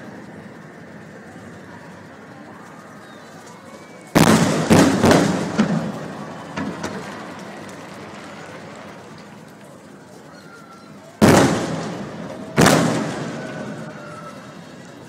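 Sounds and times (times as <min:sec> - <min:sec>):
fireworks shells bursting: 0:04.1 - 0:07.8, 0:11.2 - 0:13.9.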